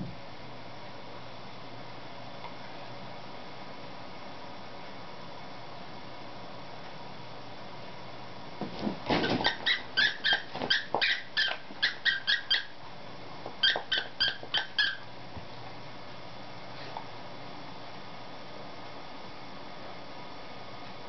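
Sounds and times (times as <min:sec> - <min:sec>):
squeaky toy squeaking: 0:09.4 - 0:12.7, 0:13.6 - 0:15.0.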